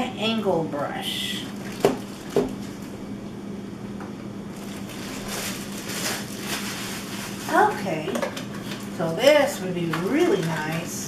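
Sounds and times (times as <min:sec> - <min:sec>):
plastic packaging crinkling: 0:01.5 - 0:02.9, 0:04.5 - 0:11.0.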